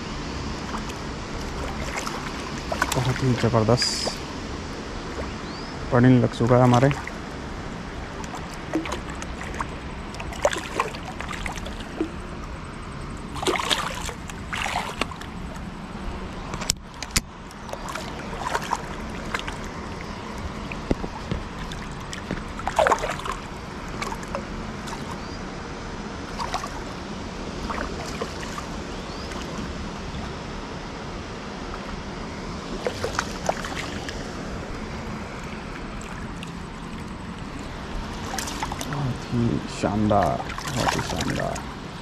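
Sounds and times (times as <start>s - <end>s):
river water flowing: 0.0s - 42.0s
water splashing near bank: 0.0s - 42.0s.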